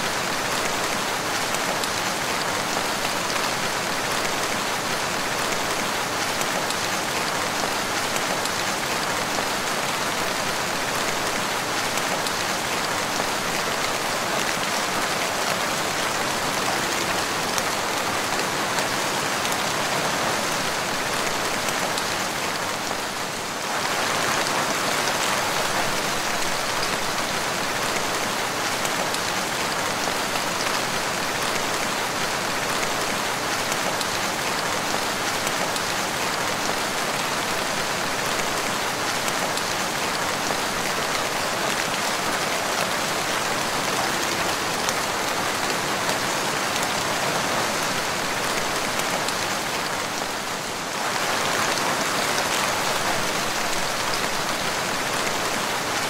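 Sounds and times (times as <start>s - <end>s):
steady rain falling: 0.0s - 56.0s.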